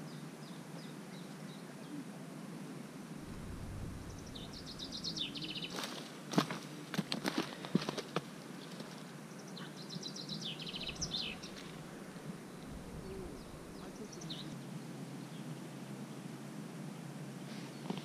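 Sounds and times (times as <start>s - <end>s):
small songbird twittering: 3.3s - 5.9s, 9.8s - 14.6s.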